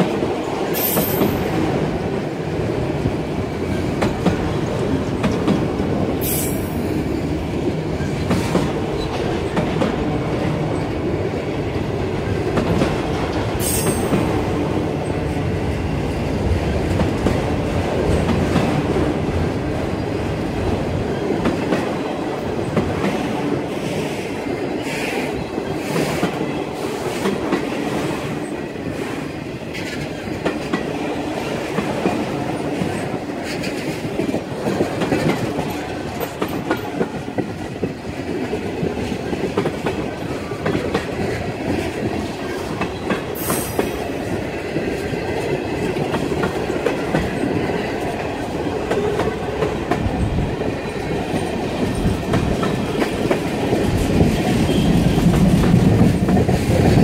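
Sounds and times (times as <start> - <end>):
freight train rolling past: 0.0 - 57.0
train wheels squealing: 0.7 - 1.6, 6.2 - 7.0, 13.6 - 14.2.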